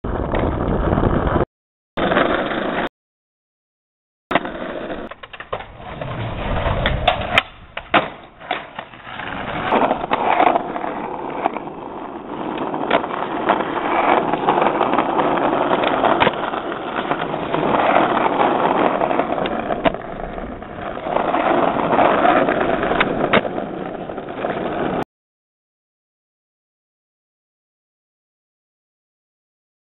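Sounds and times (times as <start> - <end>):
skateboard wheels rolling on asphalt: 0.0 - 2.9, 4.3 - 25.1
skateboard clacks: 4.3 - 25.0.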